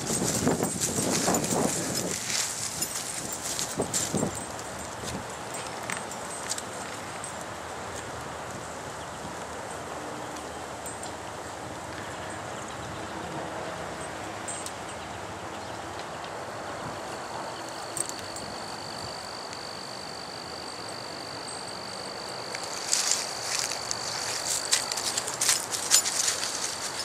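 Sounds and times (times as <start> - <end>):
high-pitched insect trill: 0.0 - 7.3, 17.2 - 27.0
footsteps in dry leaves: 0.0 - 7.8, 22.4 - 27.0.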